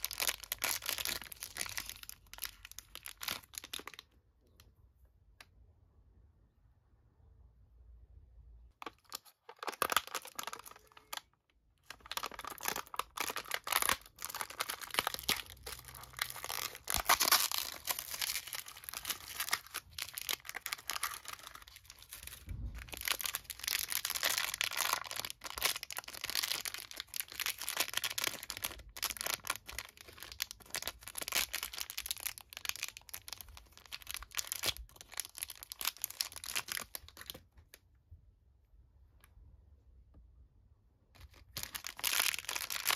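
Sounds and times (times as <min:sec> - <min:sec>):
foil bag crinkling: 0:00.0 - 0:04.0, 0:11.9 - 0:37.4, 0:41.2 - 0:42.9
packaging being torn open: 0:11.9 - 0:37.4.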